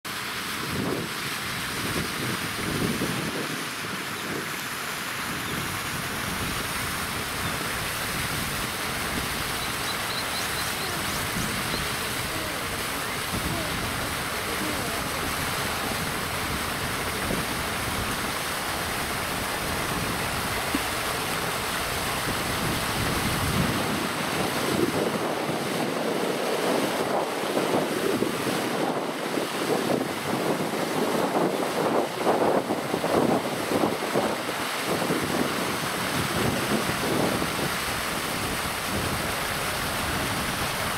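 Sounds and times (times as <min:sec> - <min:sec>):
water splashing: 0:00.1 - 0:40.9
wind on microphone: 0:00.4 - 0:40.9.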